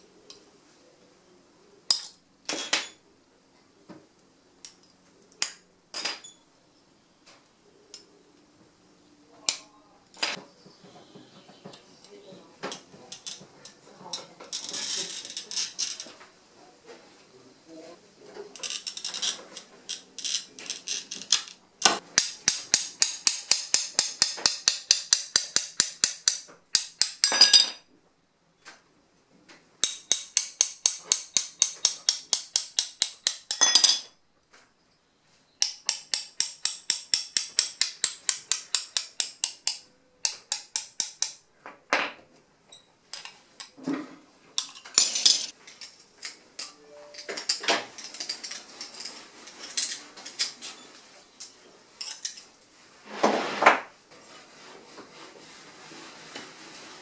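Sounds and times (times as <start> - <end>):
glass cutter tapping glass: 21.3 - 27.6, 35.6 - 41.4.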